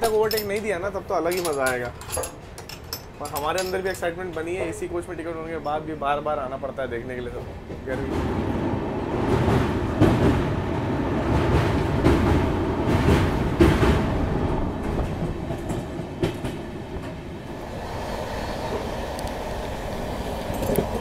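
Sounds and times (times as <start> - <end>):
train wheels rumbling on track: 0.0 - 21.0
wheels clacking over rail joints: 7.2 - 18.0, 18.6 - 21.0.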